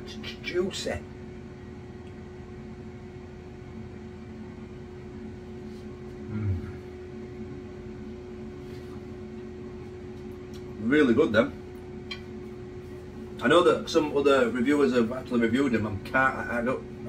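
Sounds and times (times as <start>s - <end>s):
kitchen appliance electric hum: 0.0s - 17.0s
person humming while chewing: 6.1s - 7.0s.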